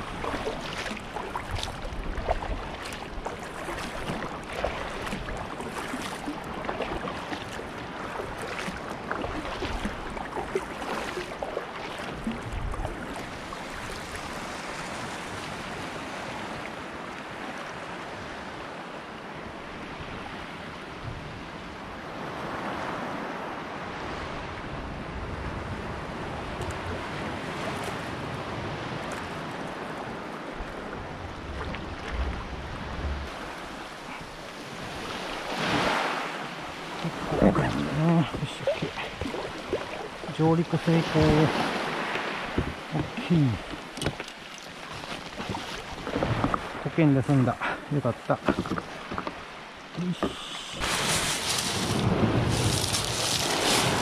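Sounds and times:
sea water splashing around kayak: 0.0 - 54.0
wind buffeting microphone: 30.5 - 33.8
wave surging: 31.0 - 43.7, 49.9 - 54.0.

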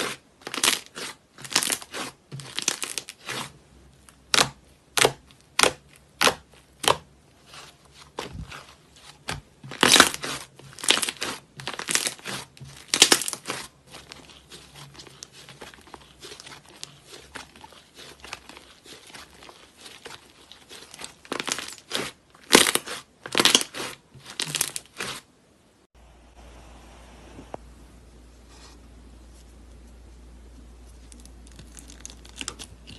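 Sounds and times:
slime handling sounds: 0.1 - 25.2
slime crackling: 4.2 - 25.2.

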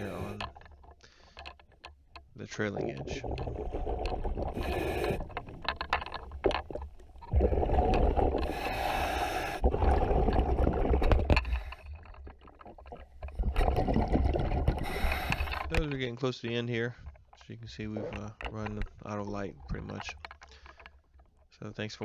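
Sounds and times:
bubbling exhalations: 2.6 - 5.7, 7.2 - 15.8
diver breathing through regulator: 4.5 - 5.5, 7.4 - 10.3, 14.6 - 15.7.

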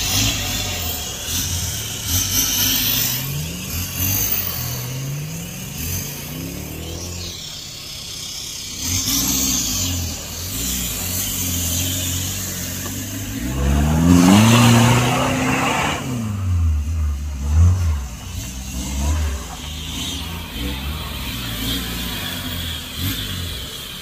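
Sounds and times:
vehicle engine revving: 0.0 - 24.0.

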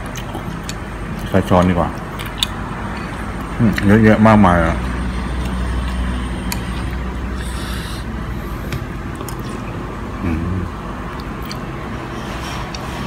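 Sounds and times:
low background hum: 0.0 - 13.0
mouth tasting sound: 5.4 - 8.6.

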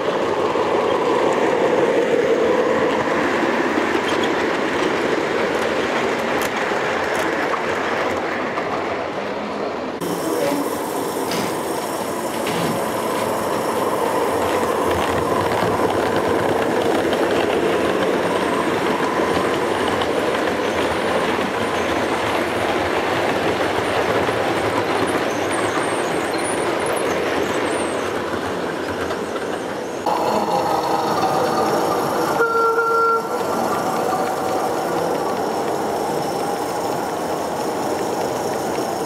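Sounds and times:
model train wheels rumbling: 28.1 - 39.0.

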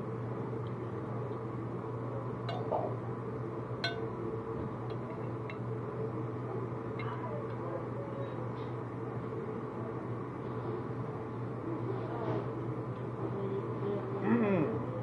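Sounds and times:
steady background hum: 0.0 - 15.0
metal spoon clinking on plate: 2.5 - 2.9, 3.8 - 4.1.

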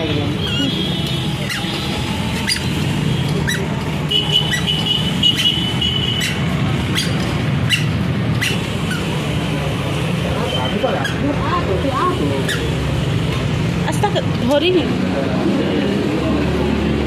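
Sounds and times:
road traffic rumble: 0.0 - 17.0.

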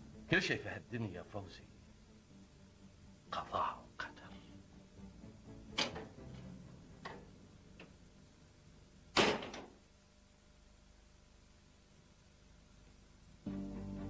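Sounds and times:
door shutting with a bang: 9.2 - 9.8.

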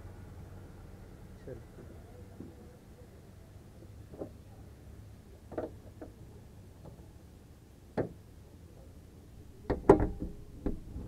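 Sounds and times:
car bonnet clunks and knocks: 9.6 - 11.0.

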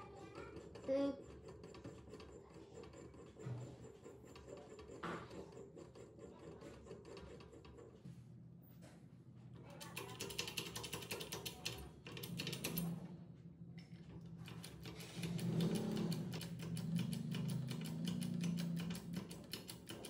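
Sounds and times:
jack handle clicking and rattling: 14.3 - 20.0.

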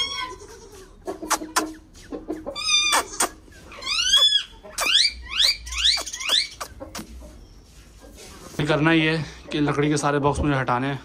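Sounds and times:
parrot squawking: 2.5 - 7.0.

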